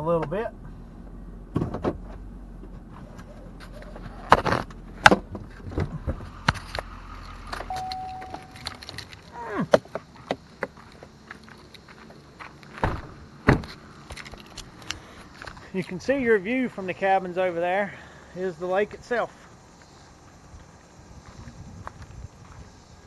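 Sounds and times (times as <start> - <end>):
engine low hum: 0.0 - 23.0
car door opening: 1.5 - 6.6, 7.5 - 9.9, 12.7 - 14.5
handling clicks and rattles: 7.5 - 10.7
short steady tone: 7.7 - 8.8
keys jangling: 7.7 - 9.3.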